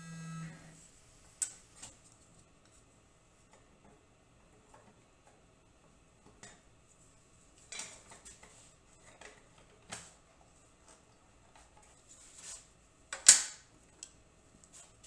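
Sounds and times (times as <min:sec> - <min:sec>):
faint clicks and light clatters: 0:13.1 - 0:14.8.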